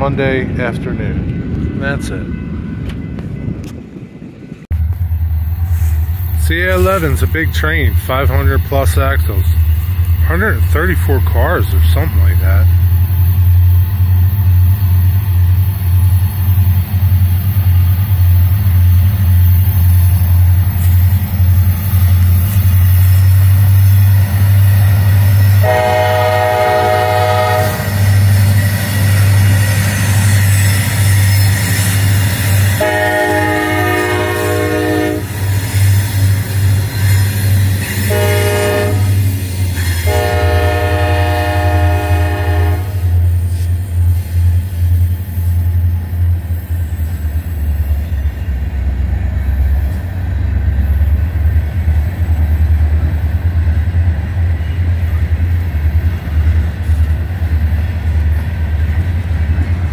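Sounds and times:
train rumbling: 0.0s - 59.9s
diesel locomotive horn blasts: 25.6s - 28.0s, 32.7s - 35.4s, 38.0s - 39.3s, 39.9s - 43.3s.

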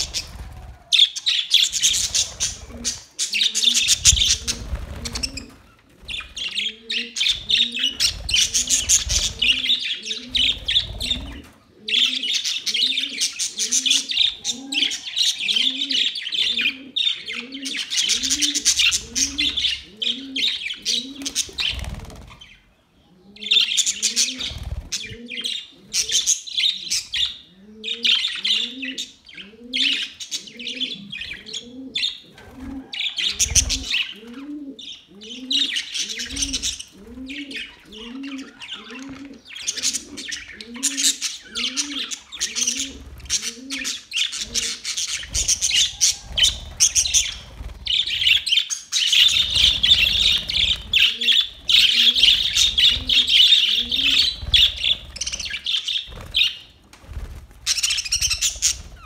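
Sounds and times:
low cooing call: 6.4s - 21.4s, 27.4s - 44.8s, 49.4s - 54.9s
budgerigars chirping: 34.8s - 56.7s, 57.7s - 59.0s.

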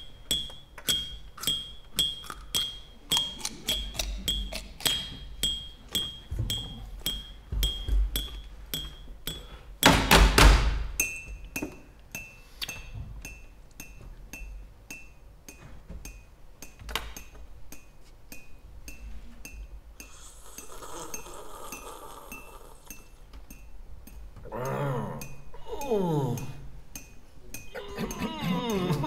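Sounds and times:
loud knock with rattle: 9.8s - 10.9s.

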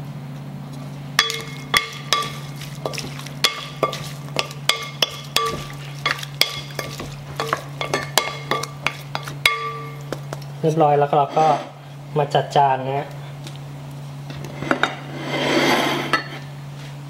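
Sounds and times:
steady low hum: 0.0s - 17.0s
wooden spoon knocking glass bowl: 1.2s - 10.4s.

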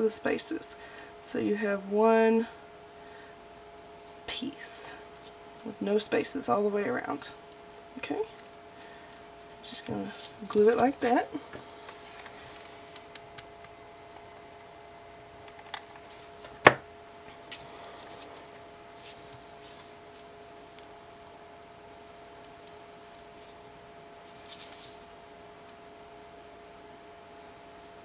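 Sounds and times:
faint steady hum: 0.0s - 28.0s
small clicks and rustles: 8.3s - 14.6s, 22.4s - 25.1s.

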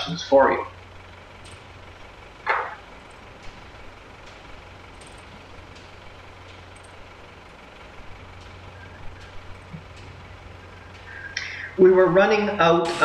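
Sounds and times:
diesel engine idling: 0.0s - 13.0s
faint clicks: 3.0s - 11.8s.

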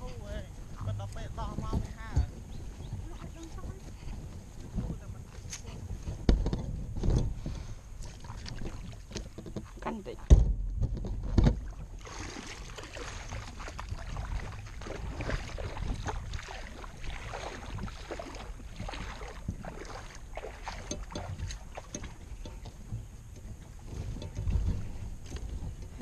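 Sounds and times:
thump: 10.3s - 11.6s.

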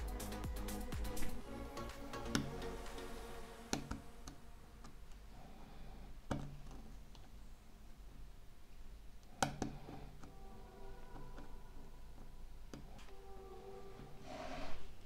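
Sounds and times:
metal tweezers clicking on plastic: 9.2s - 10.3s.

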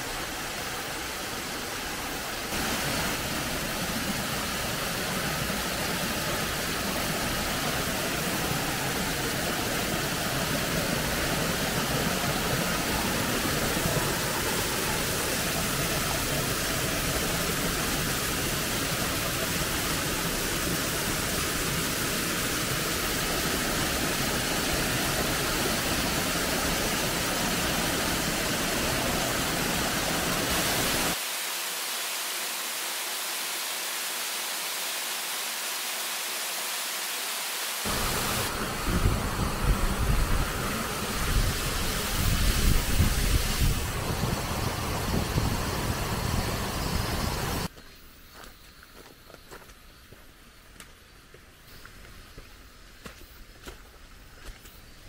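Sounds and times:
waterfall rushing: 0.0s - 47.7s.

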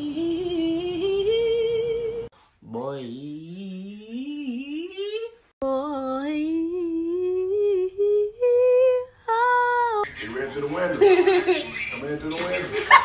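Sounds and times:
man singing wordlessly: 2.6s - 5.4s.

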